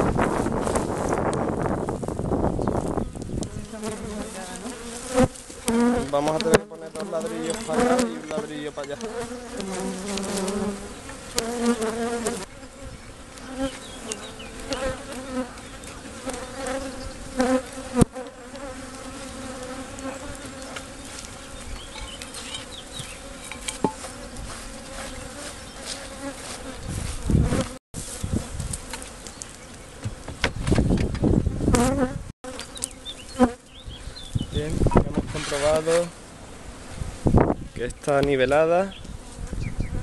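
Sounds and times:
bees buzzing: 0:00.0 - 0:37.7
knocks of bricks and wood: 0:30.0 - 0:31.4.

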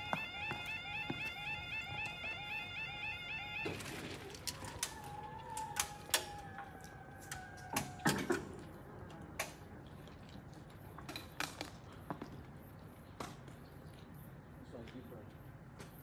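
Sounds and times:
crossing barriers clicking and clunking: 0:00.0 - 0:10.0.

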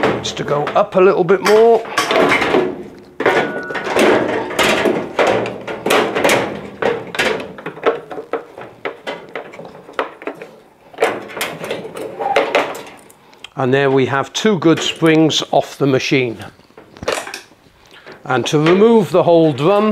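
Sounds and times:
metal springs clanking and rattling: 0:00.0 - 0:13.1.

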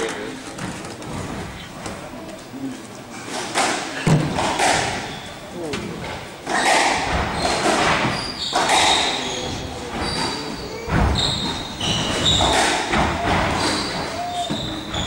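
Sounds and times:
squash ball hitting rackets and walls: 0:03.3 - 0:15.0
sneakers squeaking on court: 0:06.6 - 0:15.0.

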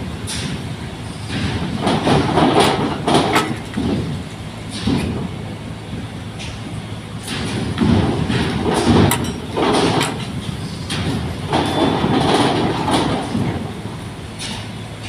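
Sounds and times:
clanks and rattles: 0:00.2 - 0:15.0.

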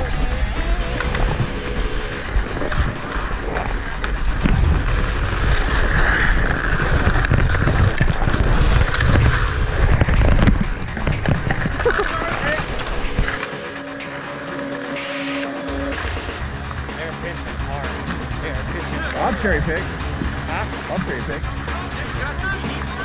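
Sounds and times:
low rumble: 0:00.0 - 0:23.0
ice skate blades scraping ice: 0:02.7 - 0:13.5.

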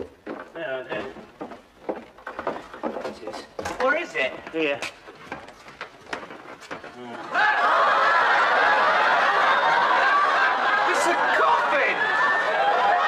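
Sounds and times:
studio audience laughing: 0:07.3 - 0:13.0.

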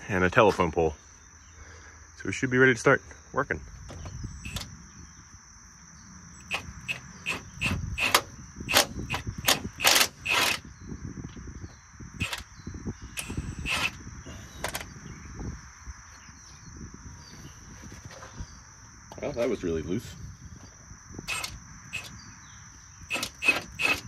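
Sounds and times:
sharp metallic clicks: 0:04.4 - 0:04.7, 0:06.4 - 0:10.6, 0:12.2 - 0:12.5, 0:13.2 - 0:14.0, 0:21.3 - 0:22.2, 0:23.1 - 0:24.0
impact wrench hammering: 0:23.1 - 0:24.0.

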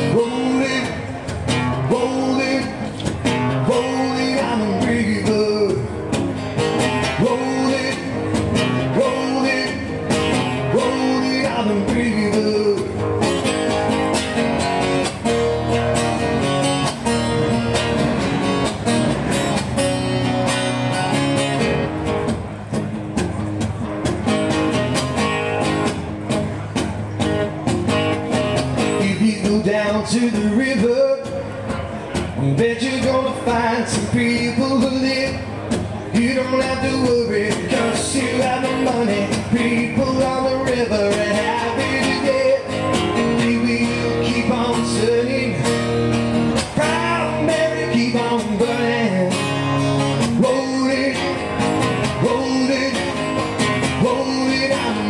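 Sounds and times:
man singing pop-rock song: 0:00.0 - 0:13.5, 0:28.8 - 0:55.0
acoustic guitar strummed: 0:00.0 - 0:55.0.

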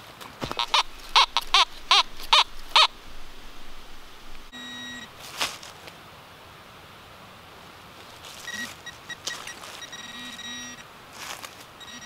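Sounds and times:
short steady beep: 0:04.5 - 0:05.1, 0:08.5 - 0:10.8, 0:11.8 - 0:12.0.

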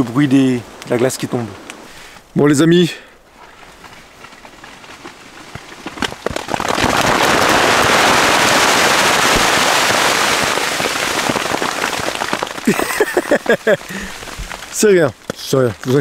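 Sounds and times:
ice pelting tent fabric: 0:03.3 - 0:16.0.

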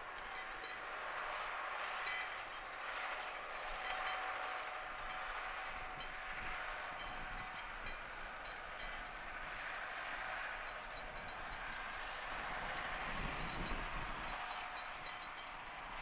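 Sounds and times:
tractor diesel engine under load: 0:00.0 - 0:16.0
light clicks and clanks: 0:00.1 - 0:09.1.

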